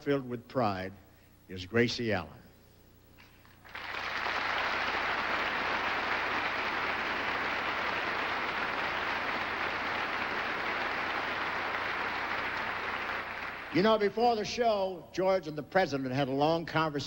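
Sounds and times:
audience applauding: 3.6 - 13.8.

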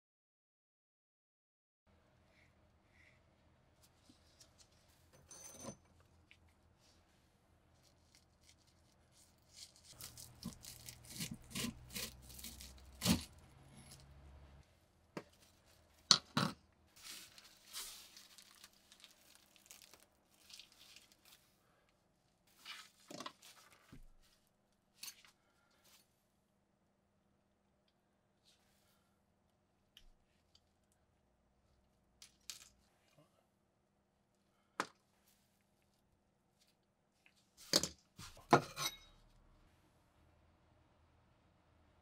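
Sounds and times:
plastic wrapping crinkling and tearing: 7.8 - 13.4, 17.0 - 21.5.

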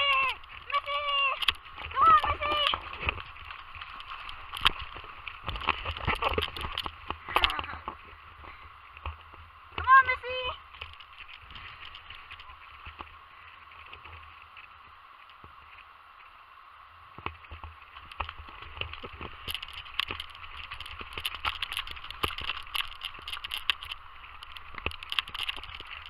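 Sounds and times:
footsteps splashing in shallow water: 0.0 - 7.2.

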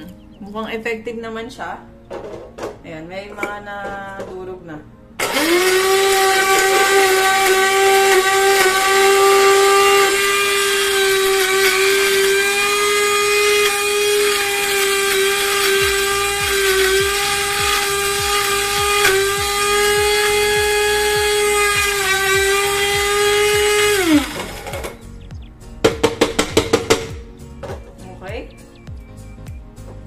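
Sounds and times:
grinder motor whining: 5.2 - 27.8.

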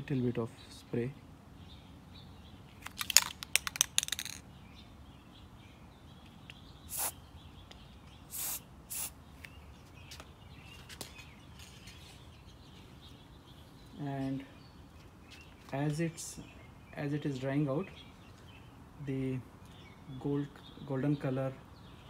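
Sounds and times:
clatter of sharp clicks: 2.8 - 4.4
spray can hissing: 6.9 - 7.2, 8.3 - 9.1.

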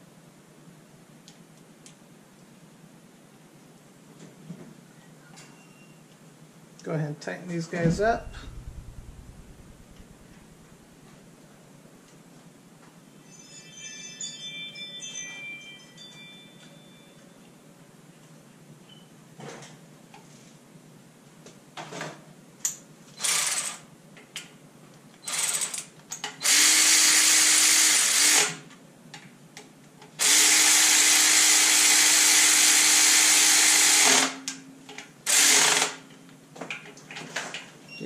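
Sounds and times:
power driver running: 8.0 - 10.7.

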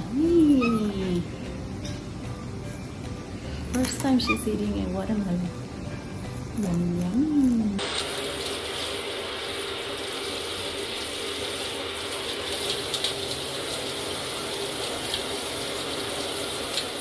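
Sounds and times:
parrot bathing in water: 7.8 - 17.0.

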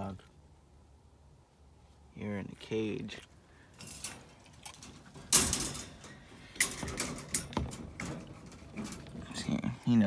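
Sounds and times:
metal crate door rattling: 3.8 - 9.6.

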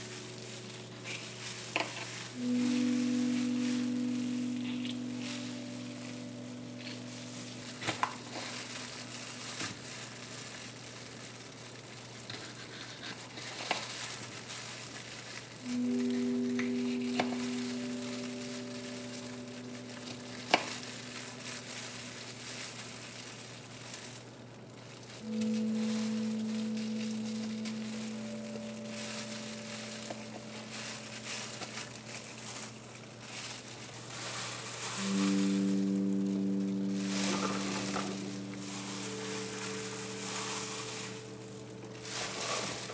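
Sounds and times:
background music of held notes: 0.0 - 10.6, 15.6 - 23.3, 25.2 - 32.6, 34.3 - 42.9
plastic gloves crinkling: 0.0 - 42.9.

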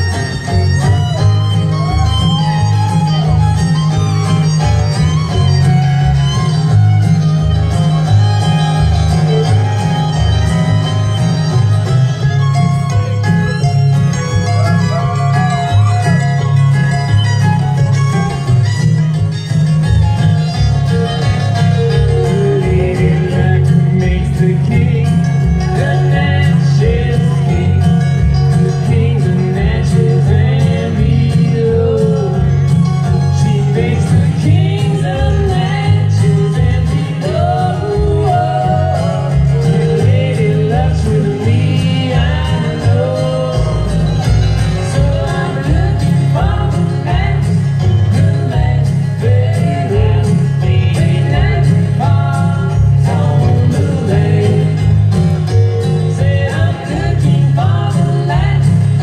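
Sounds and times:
acoustic guitars strummed and picked: 0.0 - 59.0
upright bass: 0.0 - 59.0
person singing: 21.0 - 59.0.

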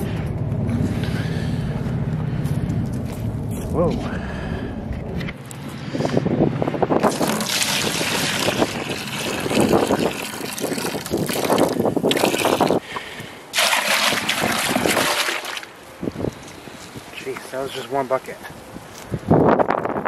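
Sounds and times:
sap pouring into plastic bucket: 7.0 - 12.8, 13.6 - 15.7.

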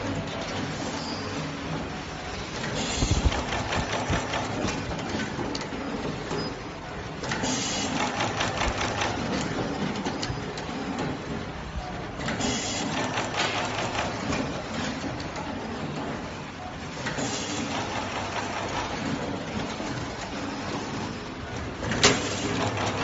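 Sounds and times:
machine clicking and clacking: 0.0 - 23.0.

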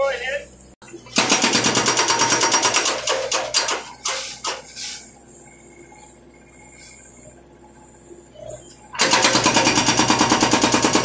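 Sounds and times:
hydraulic breaker hammering concrete: 1.1 - 3.8, 9.0 - 11.0.

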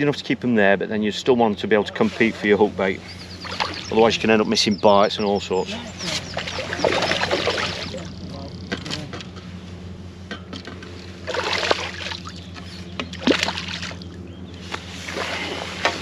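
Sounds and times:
steady low hum: 0.0 - 16.0
fish splashing in water: 3.2 - 4.0, 5.9 - 8.1, 11.0 - 14.2, 14.8 - 16.0.

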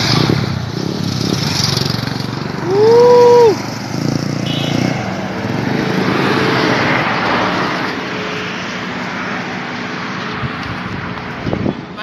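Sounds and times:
road noise hiss: 0.0 - 12.0
vehicle passing: 0.0 - 12.0.

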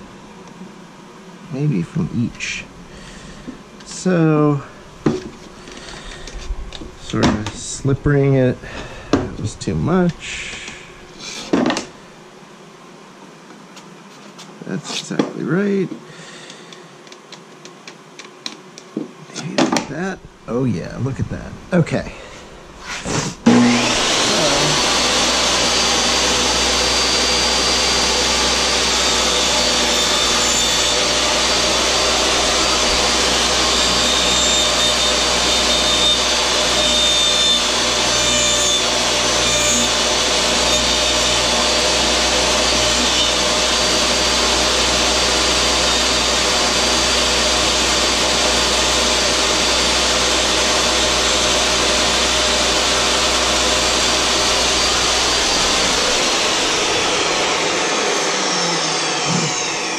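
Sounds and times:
saw cutting plastic pipe: 22.8 - 59.9
table saw whining: 22.8 - 59.9.

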